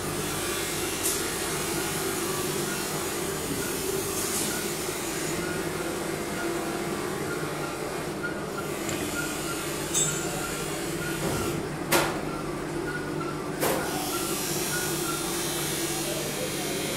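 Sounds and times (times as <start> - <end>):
workshop machinery hum: 0.0 - 16.9.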